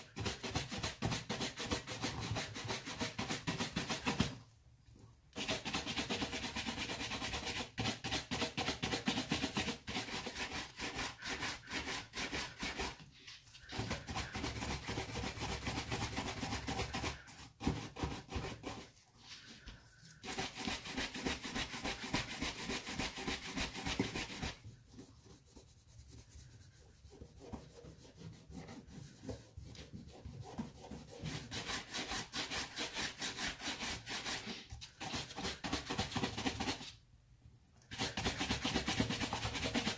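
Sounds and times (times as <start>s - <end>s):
brush buffing leather shoe: 20.1s - 35.9s.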